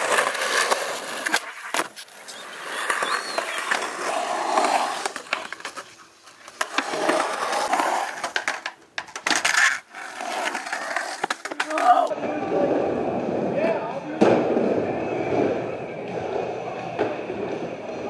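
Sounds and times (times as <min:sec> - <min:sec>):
skateboard clacking on concrete: 0:00.0 - 0:12.1
skateboard wheels rolling on concrete: 0:00.0 - 0:18.0.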